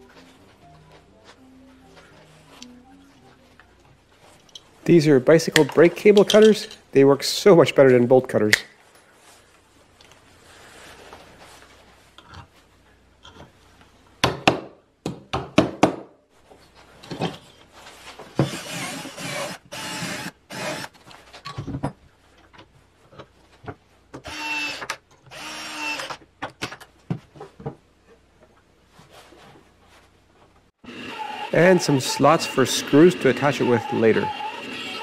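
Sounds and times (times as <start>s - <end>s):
tools clicking and knocking: 5.5s - 6.9s, 13.2s - 13.5s
cordless drill boring into wood: 18.4s - 20.9s, 24.2s - 26.2s, 30.9s - 35.0s.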